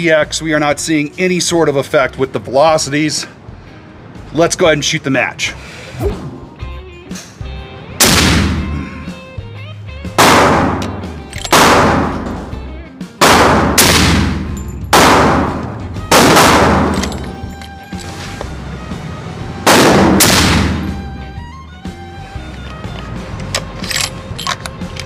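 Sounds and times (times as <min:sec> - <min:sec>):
rifle gunshots echoing indoors: 0:10.2 - 0:10.8, 0:11.5 - 0:12.4, 0:13.2 - 0:17.1, 0:19.7 - 0:20.9.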